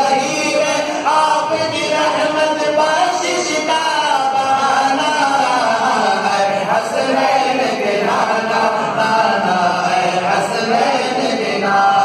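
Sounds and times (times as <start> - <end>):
man singing into a microphone: 0.0 - 7.2.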